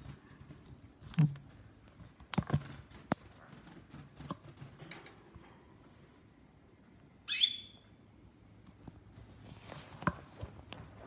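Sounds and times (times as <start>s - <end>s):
canary call: 7.3s - 7.8s.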